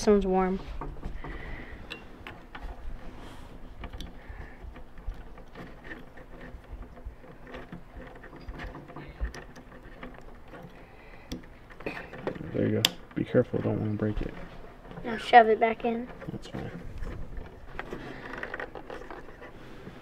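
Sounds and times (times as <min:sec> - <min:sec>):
small clicks and taps of handling: 0:03.8 - 0:15.1.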